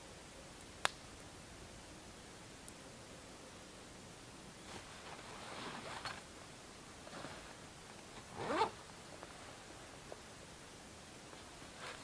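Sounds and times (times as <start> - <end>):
fabric rustling: 4.6 - 6.2, 7.0 - 10.2.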